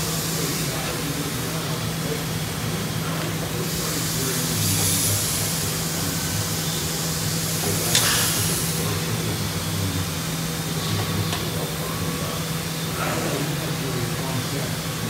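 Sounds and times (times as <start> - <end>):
laser cutter humming: 0.0 - 15.0
high hissing of cutting metal: 3.4 - 14.6.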